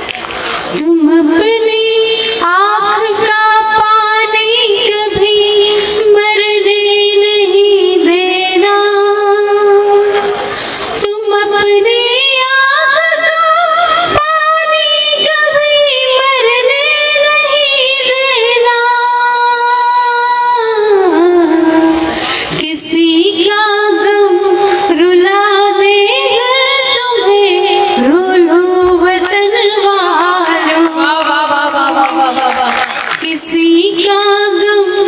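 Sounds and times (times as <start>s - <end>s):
woman singing into a microphone: 0.0s - 35.0s.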